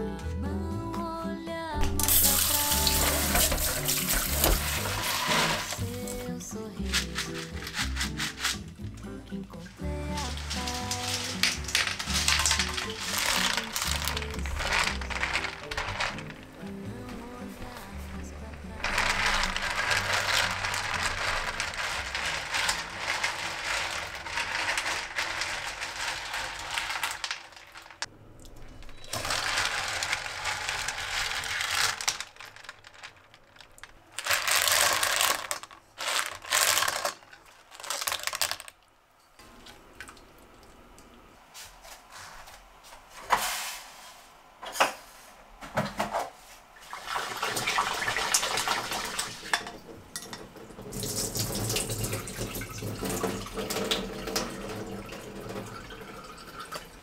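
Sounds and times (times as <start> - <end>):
kitchen tap running into bowl: 1.9 - 5.8, 47.0 - 57.0
water splashing and draining: 1.9 - 6.2, 39.4 - 41.3, 46.8 - 49.6, 50.5 - 57.0
spatula stirring shellfish in pot: 2.5 - 6.2, 6.8 - 9.0, 10.2 - 16.6, 17.8 - 28.1.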